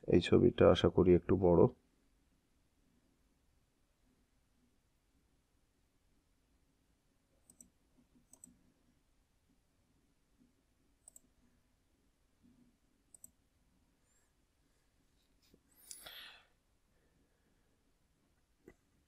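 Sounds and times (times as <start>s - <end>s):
faint computer mouse clicks: 7.4s - 8.6s, 11.0s - 11.3s, 13.1s - 13.4s.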